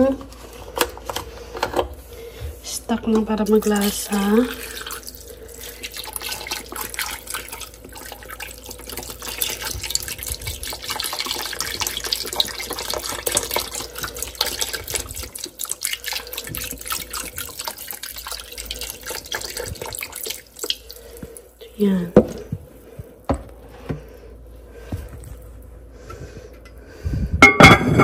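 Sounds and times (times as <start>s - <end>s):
liquid pouring and splashing: 3.5s - 22.9s.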